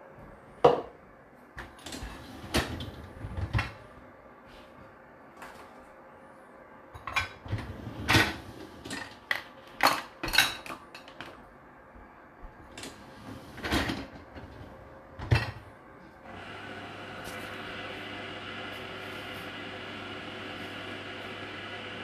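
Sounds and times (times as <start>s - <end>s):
dishwasher racks sliding: 1.8s - 3.8s, 7.2s - 9.3s, 12.7s - 15.6s
dishes clattering: 8.1s - 11.3s.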